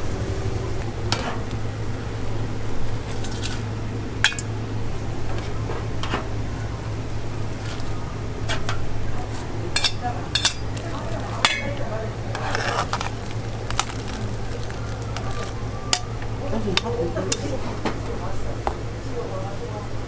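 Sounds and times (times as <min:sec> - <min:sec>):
steady low hum: 0:00.0 - 0:20.0
metal utensils clinking on bowls: 0:09.7 - 0:17.8.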